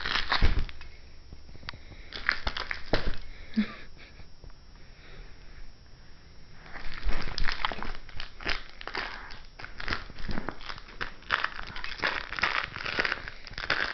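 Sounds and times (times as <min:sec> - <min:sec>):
dog chewing a crinkly toy: 0:06.6 - 0:13.9.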